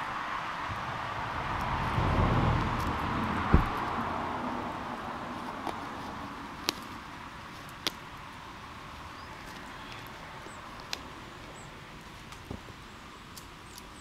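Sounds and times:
vehicle driving away: 0:00.0 - 0:06.6.

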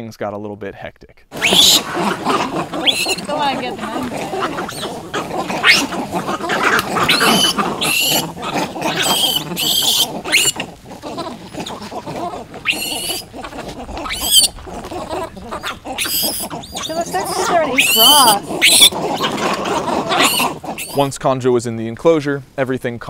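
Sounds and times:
monkeys shrieking: 0:01.3 - 0:21.1.

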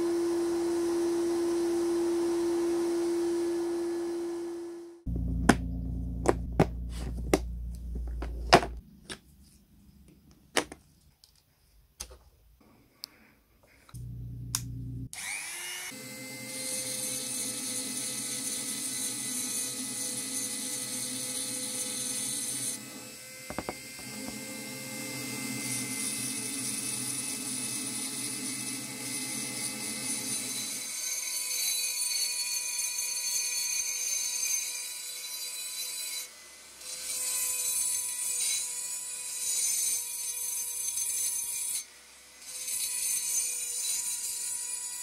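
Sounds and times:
electric rotary tool whine: 0:00.0 - 0:07.1, 0:14.0 - 0:30.8
tool bit grinding on metal: 0:23.5 - 0:24.4.

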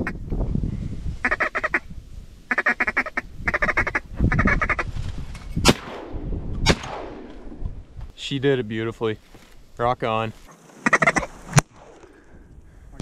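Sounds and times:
shotgun shots: 0:05.6 - 0:07.5
ducks quacking: 0:10.8 - 0:11.4.

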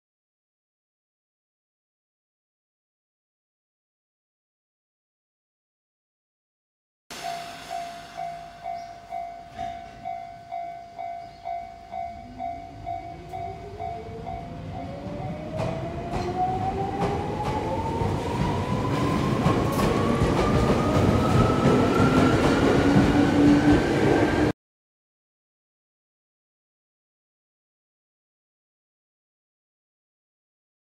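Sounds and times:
bell-like warning tone: 0:07.1 - 0:16.5.

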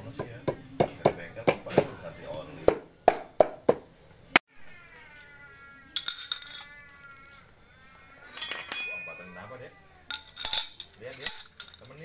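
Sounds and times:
light metallic clinks: 0:06.0 - 0:07.5, 0:08.3 - 0:12.0.

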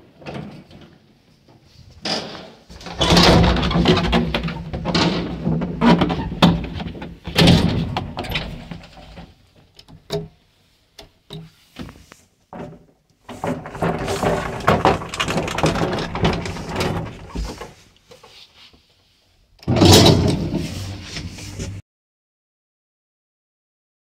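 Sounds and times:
wooden doors rattling and rubbing: 0:02.0 - 0:10.2, 0:12.6 - 0:17.9, 0:19.6 - 0:21.8.

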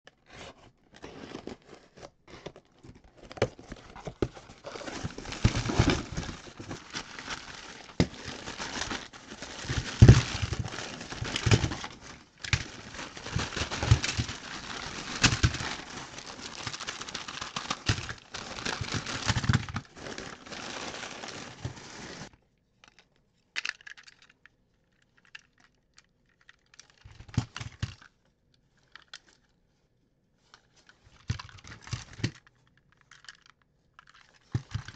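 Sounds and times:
cardboard box opening: 0:00.2 - 0:22.3
newspaper crinkling and tearing: 0:03.6 - 0:22.3
plastic toys clacking: 0:05.1 - 0:19.8, 0:22.8 - 0:24.4.

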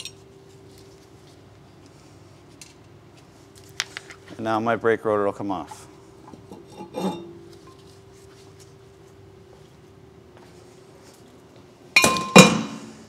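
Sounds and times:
faint steady hum: 0:00.0 - 0:13.0
loud ringing metal clang: 0:12.0 - 0:12.8.

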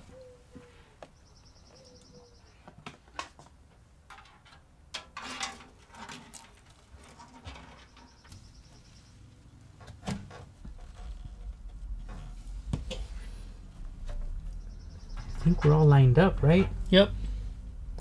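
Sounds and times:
faint high pulsed chirp: 0:01.1 - 0:02.7, 0:07.9 - 0:09.3, 0:14.4 - 0:15.8.

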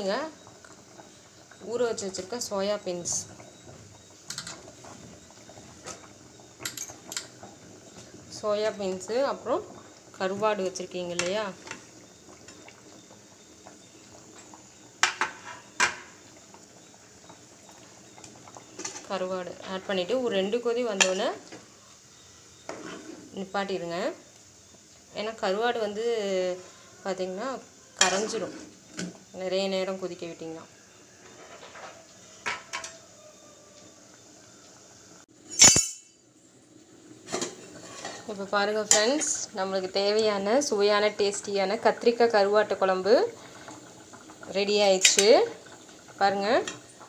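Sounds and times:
utensil clanking on metal pot: 0:35.5 - 0:36.2, 0:45.0 - 0:45.3.

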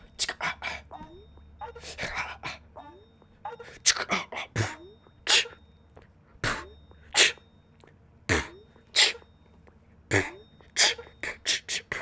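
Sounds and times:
beatbox kick-drum thumps: 0:08.3 - 0:08.6.

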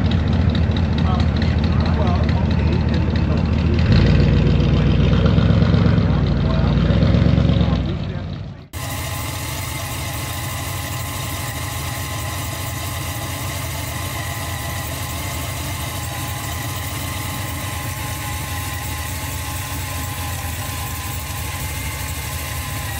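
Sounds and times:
car engine idling: 0:00.0 - 0:22.9.

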